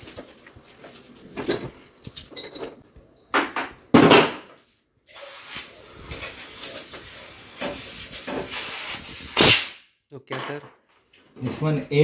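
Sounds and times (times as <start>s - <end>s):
gas escaping hiss: 5.1s - 9.7s.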